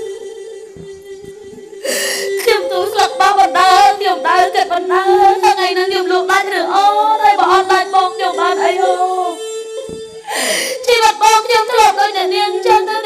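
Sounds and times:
high voice singing: 0.0s - 13.0s.

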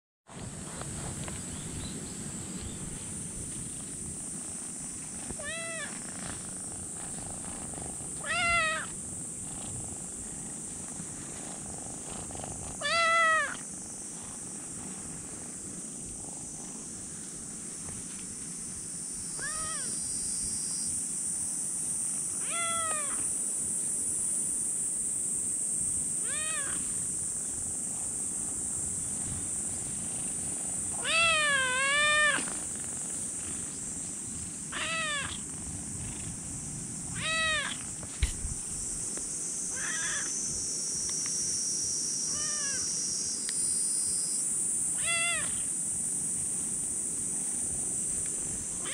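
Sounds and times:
kitten meowing: 5.4s - 6.0s, 8.2s - 8.9s, 12.8s - 13.6s, 19.4s - 20.0s, 22.4s - 23.2s, 26.2s - 26.8s, 31.0s - 32.5s, 34.8s - 35.4s, 37.2s - 37.8s, 39.8s - 40.3s, 45.0s - 45.6s.

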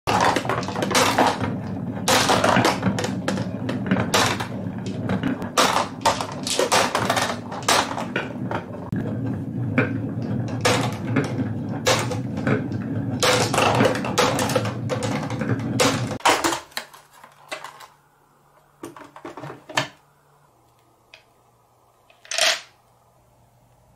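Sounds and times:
marbles rolling on wooden track: 0.1s - 17.9s, 22.1s - 22.7s
marbles clicking and clacking: 22.1s - 22.7s.

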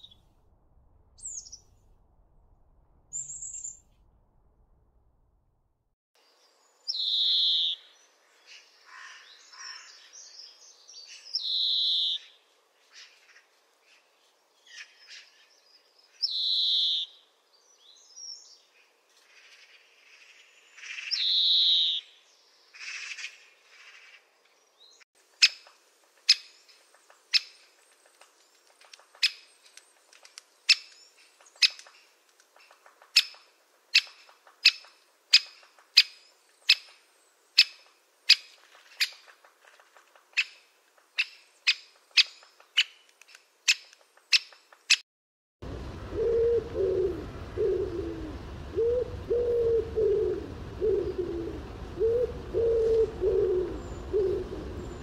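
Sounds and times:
woodpecker sharp kik calls: 30.6s - 37.0s, 37.6s - 39.3s, 41.2s - 45.0s
pigeons cooing: 45.8s - 55.0s.

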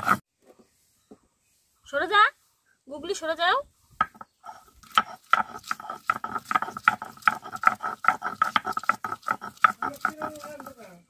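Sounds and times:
grinding stone rasping on stone slab: 0.0s - 0.2s, 4.0s - 10.9s.

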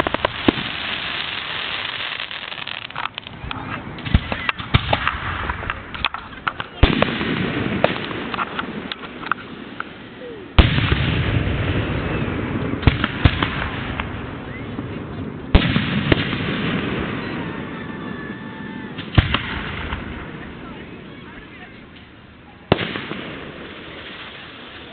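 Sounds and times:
firework pops: 0.0s - 0.8s, 1.7s - 9.9s, 12.8s - 14.2s
rolling echo: 0.0s - 24.9s
cluster of cracks: 2.0s - 9.9s.

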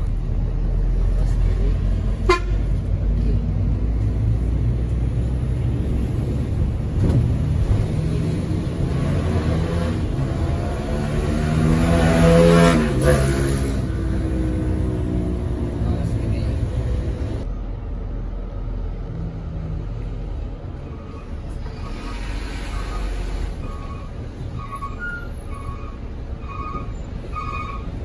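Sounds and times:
bus engine and road rumble: 0.0s - 28.0s
vehicle horn: 2.2s - 2.6s.

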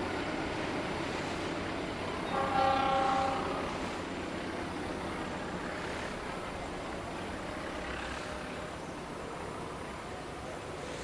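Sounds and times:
train rolling on rails: 0.0s - 11.0s
train horn blast: 2.2s - 3.9s.

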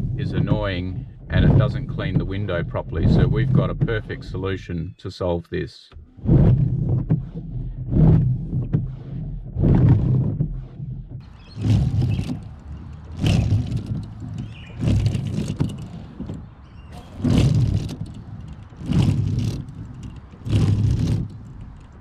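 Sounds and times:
wiper blades chattering on glass: 11.2s - 22.0s.

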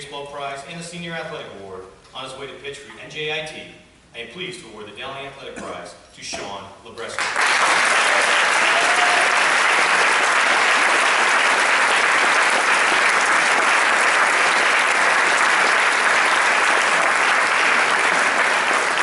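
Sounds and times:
audience applause: 7.2s - 19.0s.

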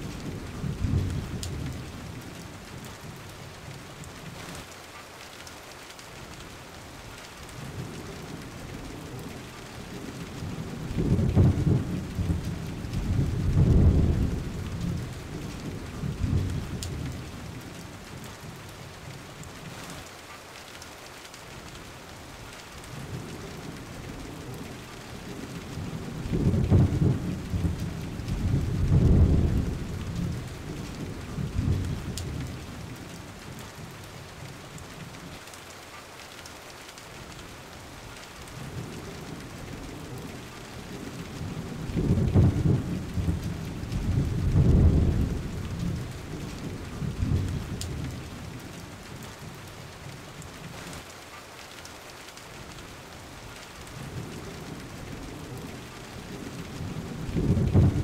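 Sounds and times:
steady rain hiss: 0.0s - 58.0s
rolls of thunder: 10.4s - 17.2s, 25.8s - 32.6s, 41.4s - 48.3s, 56.4s - 58.0s.

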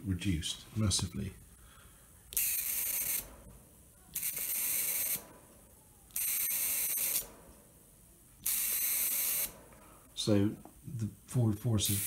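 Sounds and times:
high-pitched electrical hiss: 2.3s - 3.4s, 4.1s - 5.3s, 6.1s - 7.3s, 8.4s - 12.0s.

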